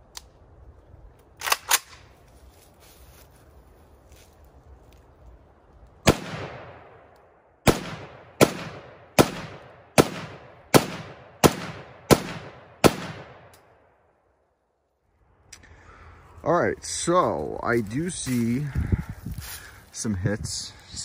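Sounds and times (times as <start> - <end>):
rifle shots with echo: 6.0 - 13.9.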